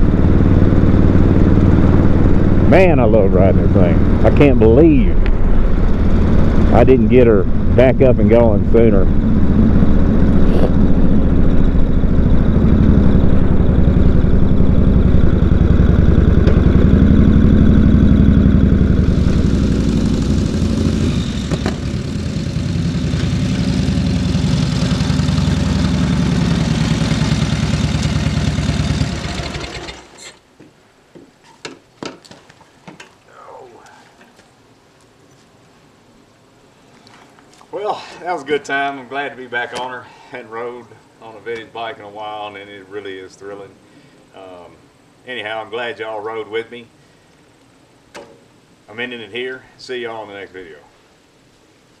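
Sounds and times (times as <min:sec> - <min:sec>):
motorcycle engine running: 0:00.0 - 0:30.2.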